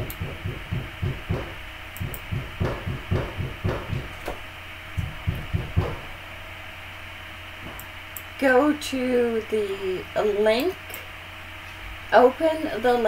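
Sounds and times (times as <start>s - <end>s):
steady electrical hum: 0.0s - 13.0s
dull thumps at a desk: 2.3s - 4.4s.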